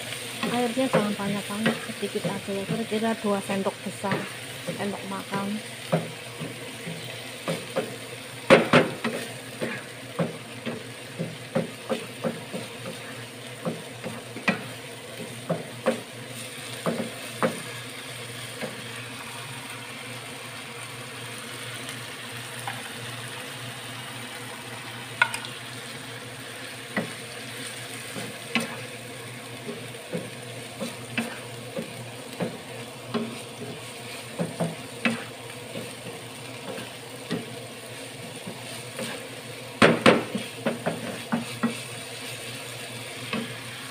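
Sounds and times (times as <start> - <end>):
food sizzling in a frying pan: 0.0 - 43.9
wooden spatula scraping a pan: 29.6 - 39.4, 40.2 - 43.6.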